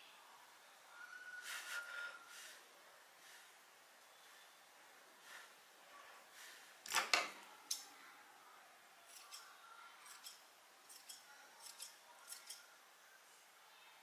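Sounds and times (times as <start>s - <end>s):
scissors snipping yarn: 9.1s - 12.7s.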